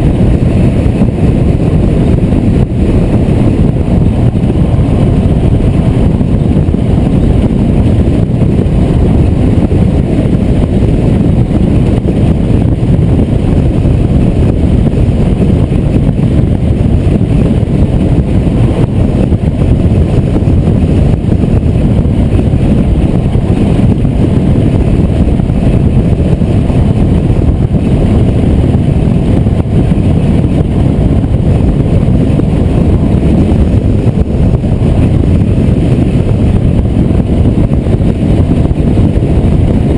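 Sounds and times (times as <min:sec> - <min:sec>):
wind and tyre road noise: 0:00.0 - 0:39.9.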